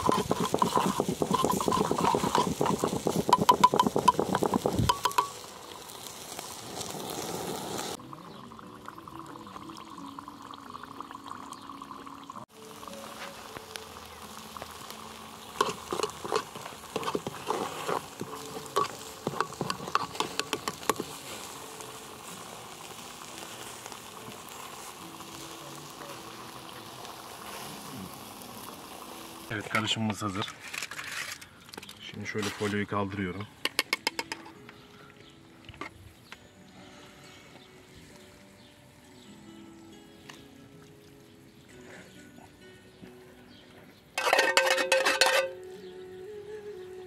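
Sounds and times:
metal spoon clinking against pot: 0.0 - 5.4, 18.6 - 21.1, 44.2 - 45.6
sauce sizzling and bubbling: 0.0 - 29.6.

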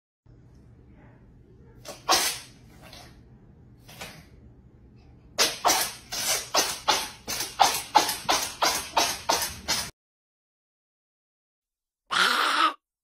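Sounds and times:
kitten sneezing: 1.9 - 2.5.

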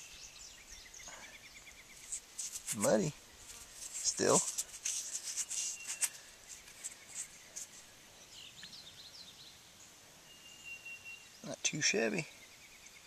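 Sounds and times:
bird chirping: 0.0 - 3.4, 4.0 - 13.0
fingers scraping mud off stone: 3.5 - 7.8.

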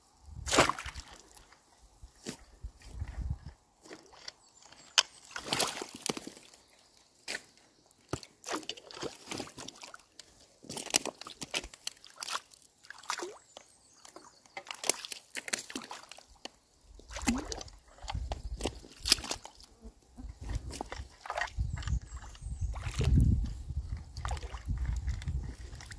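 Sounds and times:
muddy water sloshing: 0.4 - 25.9.

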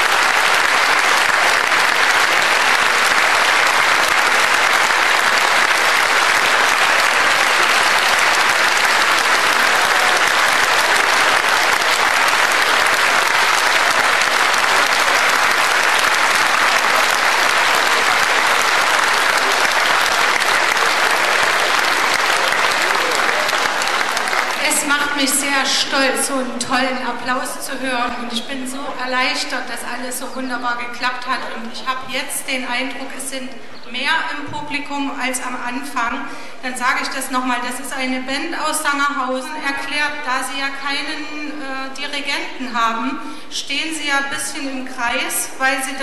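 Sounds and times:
audience applauding: 0.0 - 25.6.

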